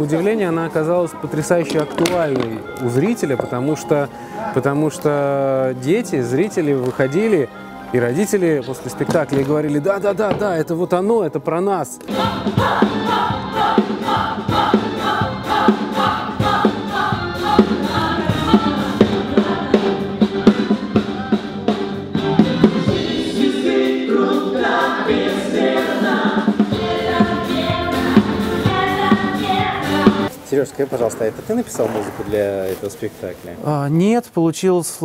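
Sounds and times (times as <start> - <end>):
group of voices singing: 12.0 - 21.3, 22.2 - 30.3
band with steady drum beat: 12.1 - 23.6.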